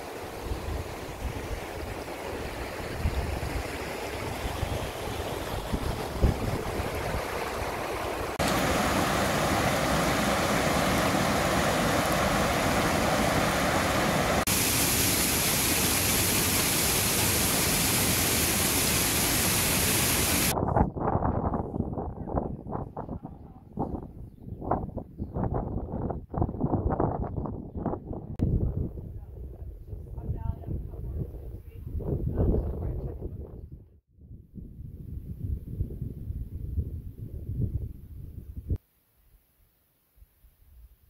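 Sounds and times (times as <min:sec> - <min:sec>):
wind rumbling on microphone: 0:00.0 - 0:14.6, 0:15.8 - 0:38.8
stream rushing over stones: 0:00.0 - 0:20.6
waterfall rushing: 0:03.7 - 0:20.5.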